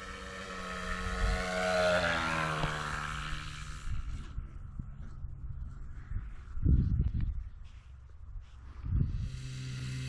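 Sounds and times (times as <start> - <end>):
model plane motor buzzing: 0.0 - 5.4, 9.0 - 10.0.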